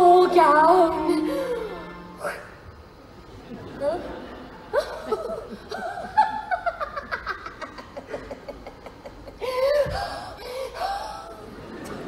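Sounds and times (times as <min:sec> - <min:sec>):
woman laughing: 0:03.8 - 0:10.1.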